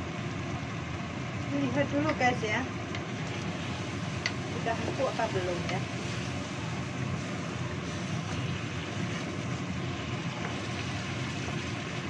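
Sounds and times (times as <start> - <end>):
gas burner noise: 0.0 - 12.0
sauce bubbling in a wok: 0.0 - 12.0
wooden spatula ticking: 2.0 - 3.4, 4.2 - 6.0.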